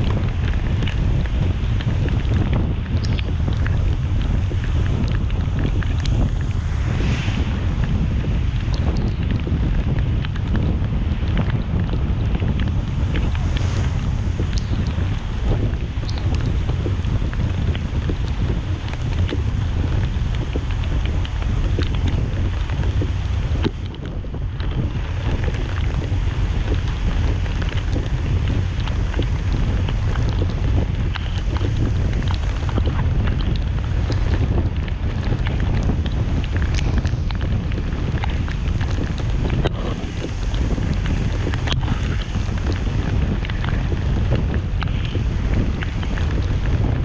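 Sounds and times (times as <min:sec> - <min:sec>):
car driving on wet road: 0:00.0 - 0:47.0
faint ticks: 0:02.9 - 0:03.8.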